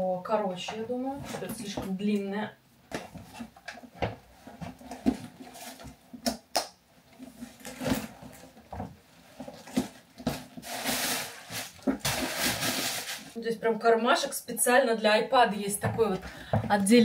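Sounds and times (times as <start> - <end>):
bag rustling: 7.4 - 13.4.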